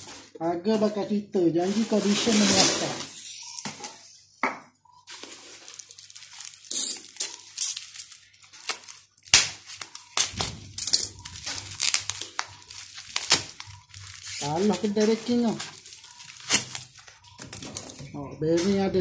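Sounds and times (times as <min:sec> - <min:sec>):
packaging crinkling: 0:05.1 - 0:19.0.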